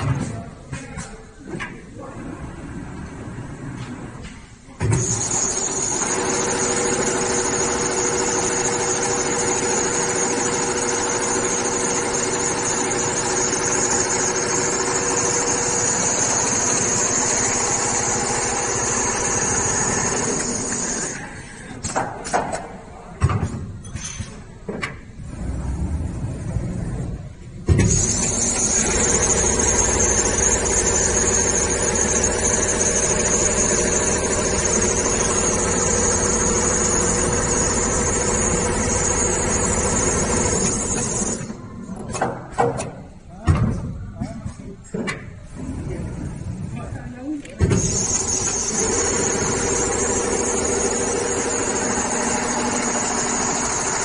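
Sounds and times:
sewing machine running: 0:04.9 - 0:21.3, 0:27.9 - 0:41.6, 0:47.7 - 0:54.0.

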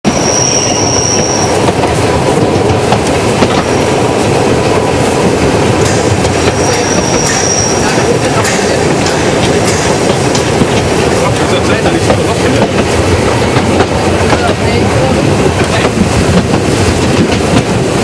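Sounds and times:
train wheels rumbling on rails: 0:00.0 - 0:18.0
high wheel squeal: 0:00.1 - 0:01.7, 0:06.4 - 0:08.7
rail-joint clicks: 0:00.1 - 0:18.0.

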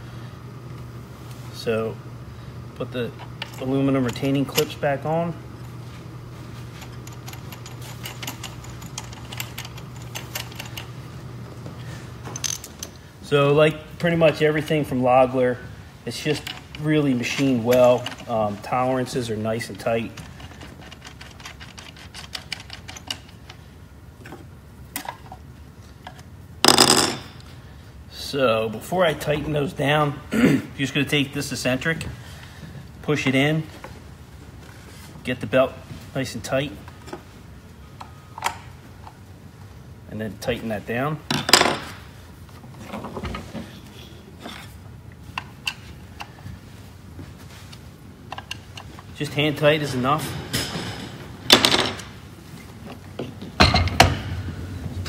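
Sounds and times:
clicks and taps of parts: 0:48.3 - 0:49.1.

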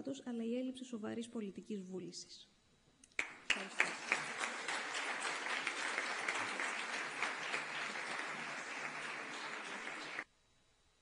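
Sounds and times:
audience applauding: 0:03.2 - 0:10.2.

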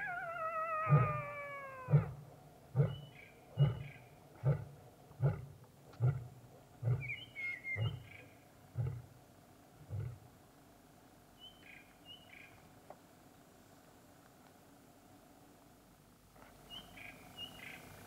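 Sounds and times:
wavering falling call: 0:00.0 - 0:02.0.

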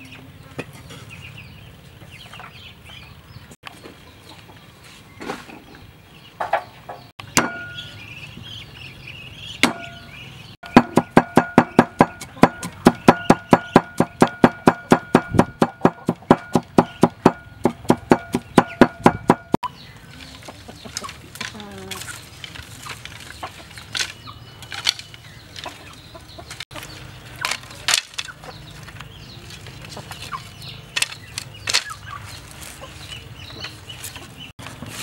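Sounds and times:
cleaver chopping on wooden board: 0:10.6 - 0:19.6.

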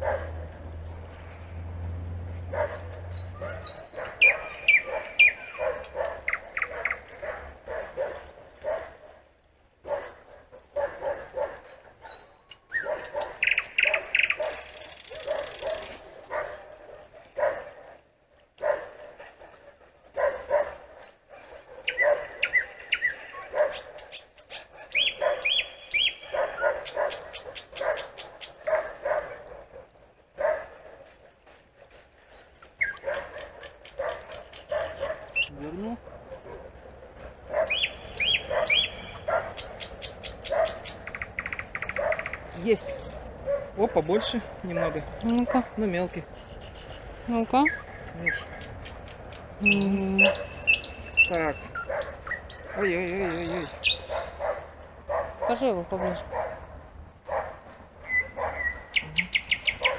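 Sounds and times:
nightingale singing: 0:02.3 - 0:07.4, 0:10.8 - 0:16.1, 0:21.0 - 0:28.7, 0:31.1 - 0:35.8, 0:36.6 - 0:43.3, 0:44.1 - 0:54.4, 0:57.7 - 0:59.9.

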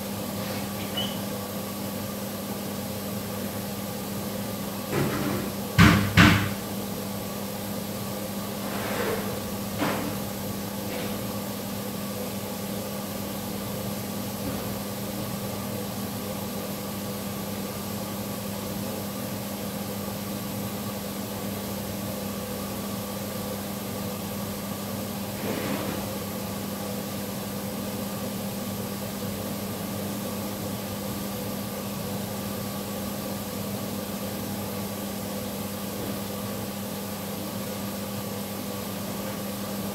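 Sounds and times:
mechanical hum: 0:00.0 - 0:39.9
loud knocks: 0:05.8 - 0:06.6.

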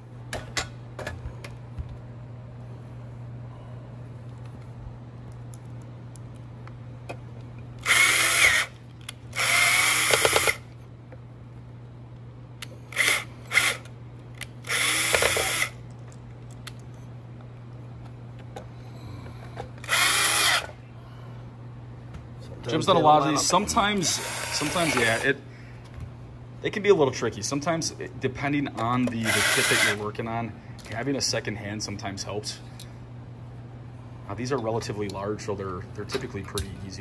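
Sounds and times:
power drill driving screws: 0:07.8 - 0:08.7, 0:09.3 - 0:10.6, 0:12.9 - 0:13.9, 0:14.6 - 0:15.8, 0:19.8 - 0:20.8, 0:24.1 - 0:25.3, 0:29.2 - 0:30.0.

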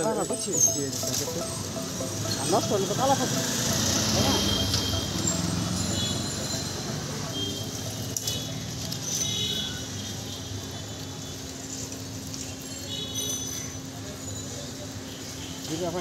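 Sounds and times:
short high tones: 0:00.0 - 0:07.7
traffic hum: 0:00.0 - 0:16.0.

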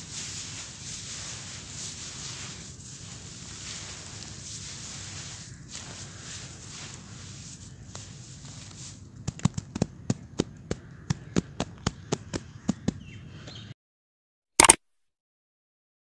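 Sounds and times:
hands slapping sand mix: 0:00.0 - 0:09.9
short loud click: 0:14.6 - 0:14.8.

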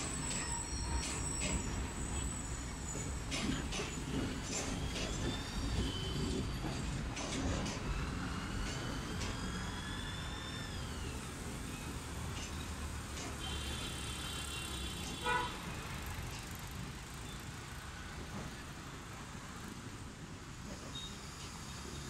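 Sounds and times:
high brake squeal: 0:00.0 - 0:16.1, 0:20.6 - 0:22.0
train rolling with low rumble: 0:00.0 - 0:22.0
train horn beep: 0:13.4 - 0:15.6.

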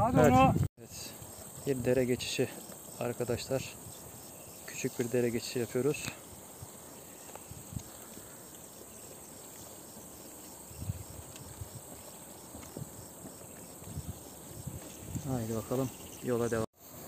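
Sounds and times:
crickets chirping: 0:00.1 - 0:17.0
footsteps on rocky ground: 0:06.3 - 0:15.6.

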